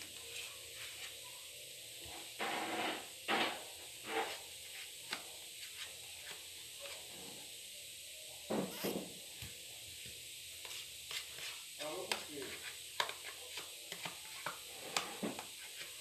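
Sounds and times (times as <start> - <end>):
knife scraping margarine: 10.6 - 16.0.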